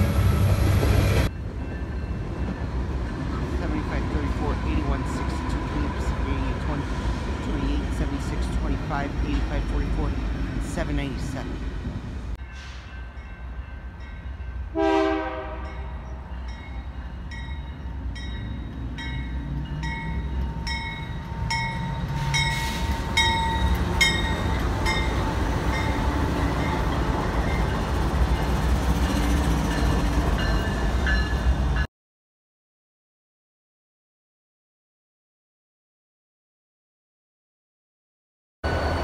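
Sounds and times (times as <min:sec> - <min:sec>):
freight train passing: 0:00.0 - 0:31.9, 0:38.6 - 0:39.0
crossing bell dinging: 0:12.4 - 0:31.9
train horn note: 0:14.7 - 0:15.9.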